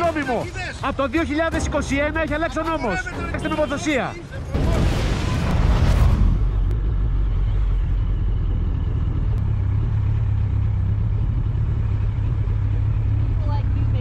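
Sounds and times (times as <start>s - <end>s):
motorcycle engine idling: 6.7s - 14.0s.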